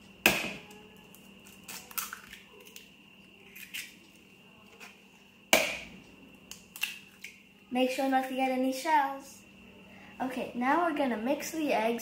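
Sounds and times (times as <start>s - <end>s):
eggshell clicks and crackles: 1.0s - 4.2s, 6.4s - 7.4s
egg cracking on bowl rim: 1.1s - 2.9s, 3.5s - 4.0s, 6.5s - 7.4s.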